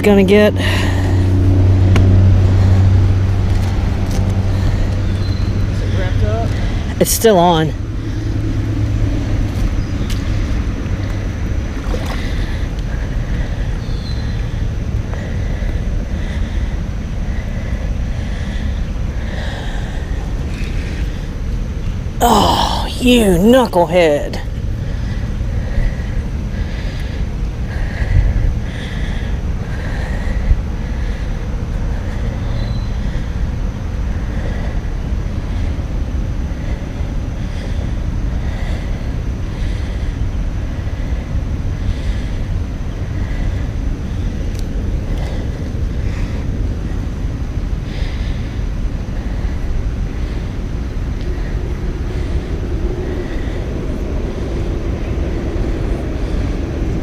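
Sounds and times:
wind buffeting microphone: 24.4 - 57.0.

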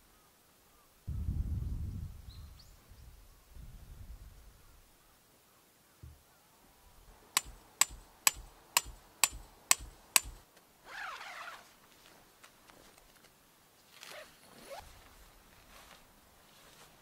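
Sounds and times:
hammer striking metal tent peg: 7.4 - 10.4
tent fabric rustling: 10.8 - 17.0.

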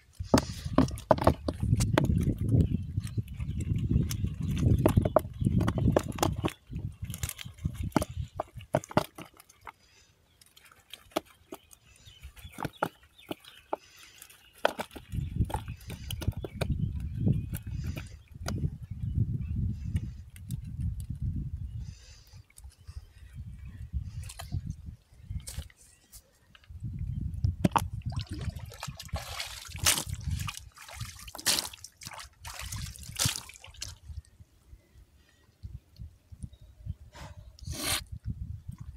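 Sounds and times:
fish splashing in water: 28.1 - 34.0.

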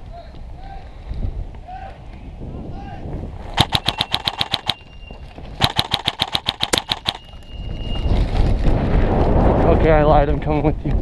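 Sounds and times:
airsoft rifle full-auto bursts: 3.6 - 4.8, 5.6 - 7.2.

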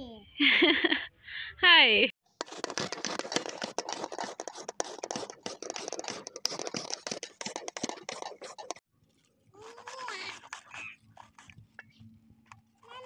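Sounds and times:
carrot scraping on metal grater: 2.4 - 8.8, 9.6 - 11.6.

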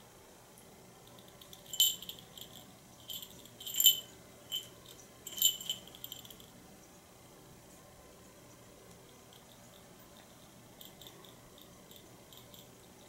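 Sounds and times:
small jingle bell jingling: 1.4 - 6.5.

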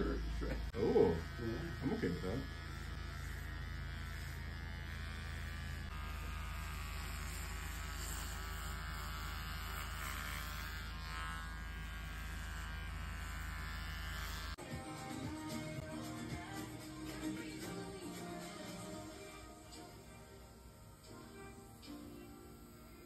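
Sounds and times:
electric hair clippers buzzing: 0.0 - 23.0.

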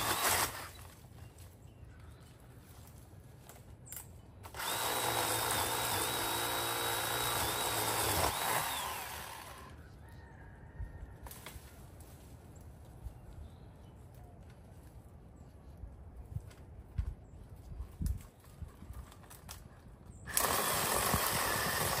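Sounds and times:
power tool motor whining: 4.5 - 9.8, 20.3 - 22.0.

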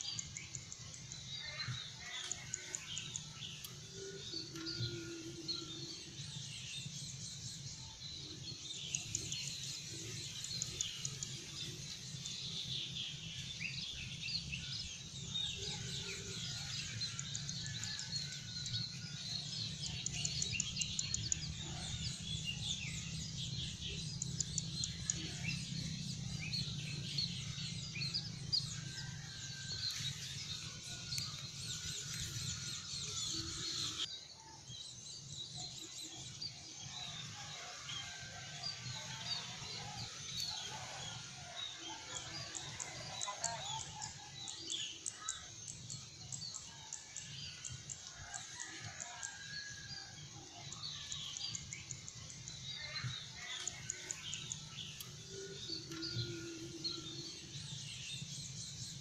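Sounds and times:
small birds chirping: 6.0 - 34.1.

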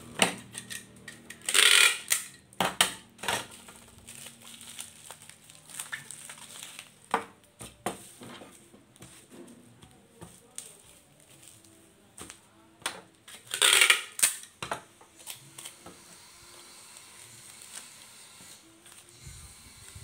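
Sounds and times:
packing tape tearing off dispenser: 0.2 - 2.4, 3.2 - 7.0, 13.2 - 14.6, 15.2 - 20.0
bubble wrap crinkling: 3.4 - 9.3, 9.9 - 14.5, 16.9 - 19.1.

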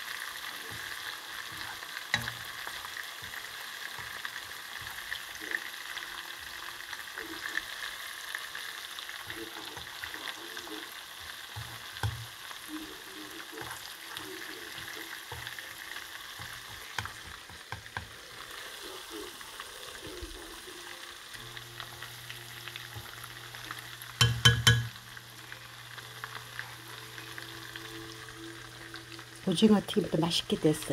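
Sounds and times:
food deep-frying in oil: 0.0 - 30.9.

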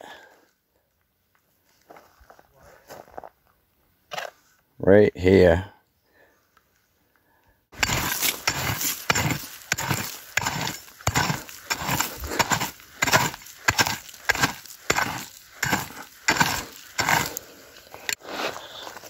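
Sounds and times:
pick striking rocky ground: 7.7 - 18.2.

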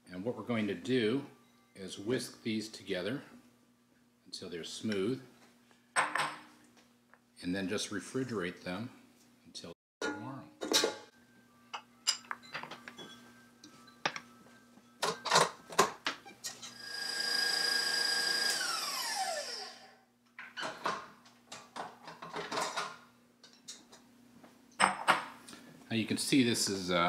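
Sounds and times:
stand mixer motor whining: 16.7 - 19.9.

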